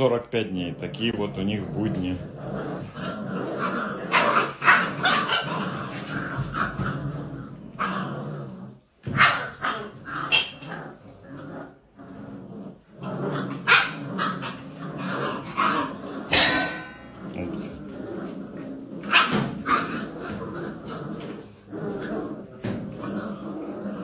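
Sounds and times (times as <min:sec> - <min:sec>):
puppies barking and yipping: 0:02.7 - 0:08.0, 0:08.9 - 0:11.0, 0:12.8 - 0:24.0.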